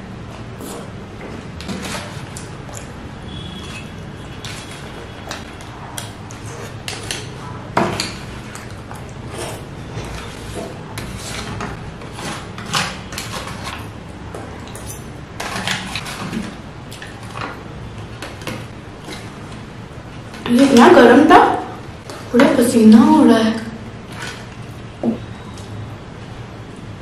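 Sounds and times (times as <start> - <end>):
spoon scraping foil tray: 1.6 - 2.5, 9.2 - 13.9.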